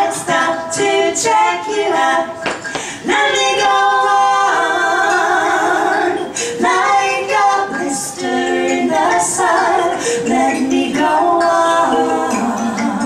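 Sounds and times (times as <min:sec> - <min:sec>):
man and woman singing in harmony: 0:00.0 - 0:13.0.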